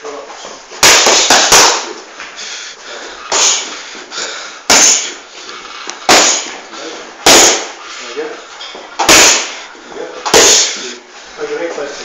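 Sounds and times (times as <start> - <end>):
boxing gloves hitting pads: 0.7 - 2.1, 4.7 - 5.2, 6.0 - 7.8, 9.0 - 9.6, 10.2 - 10.7.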